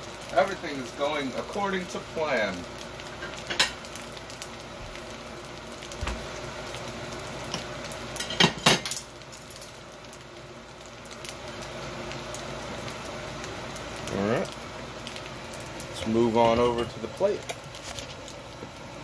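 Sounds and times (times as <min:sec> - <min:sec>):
fried rice sizzling in a wok: 0:00.0 - 0:19.0.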